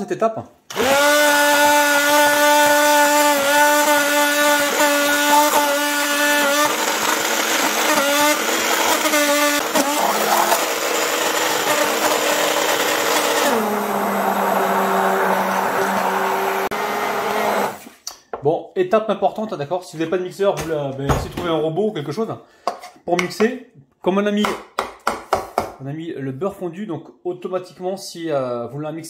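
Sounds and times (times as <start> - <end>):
stick blender motor whine: 0.7 - 17.9.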